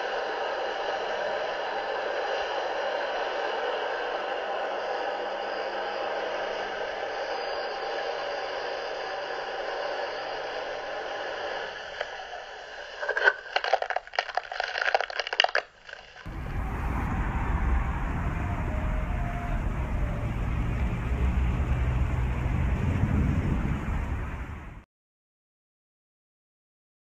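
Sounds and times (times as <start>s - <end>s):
hiss through laptop speakers: 0.0s - 13.6s
loud crackles: 12.9s - 24.8s
wind rumble on microphone: 16.3s - 24.8s.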